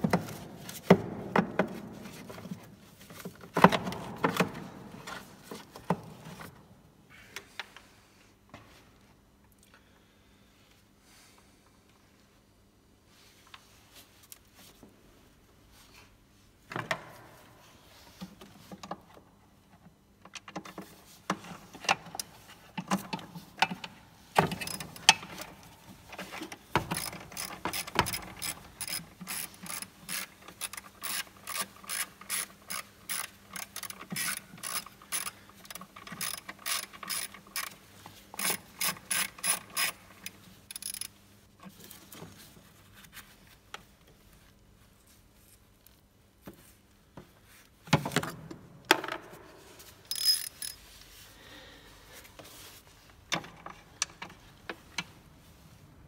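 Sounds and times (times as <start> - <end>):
tools being handled: 24.4 - 42.4, 49.9 - 51.1
ratchet wrench clicking: 26.9 - 37.8, 38.4 - 41.1, 50.1 - 50.8.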